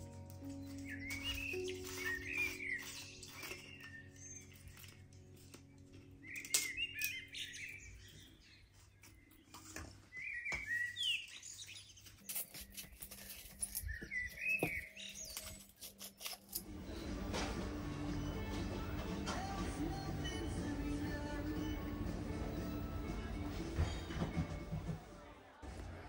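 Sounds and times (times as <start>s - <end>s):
music: 0.0s - 8.7s, 15.6s - 26.0s
small birds chirping: 0.0s - 24.4s.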